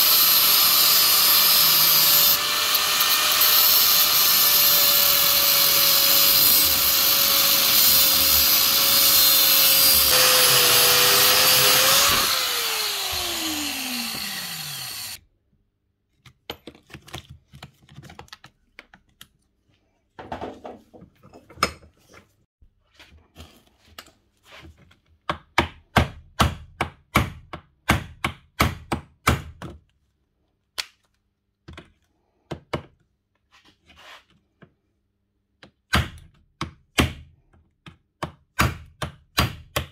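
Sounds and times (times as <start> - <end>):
angle grinder whine: 0.0 - 15.2
grinder disc spinning down: 0.0 - 15.2.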